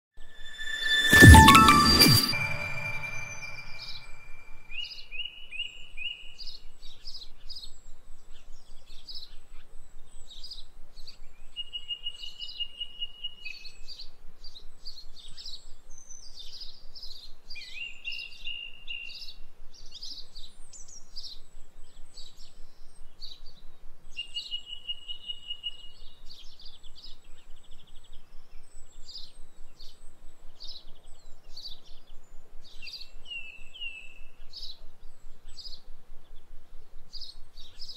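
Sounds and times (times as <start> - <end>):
whistled bird note: 0.2 - 4.6
songbirds chirping: 14.8 - 37.9.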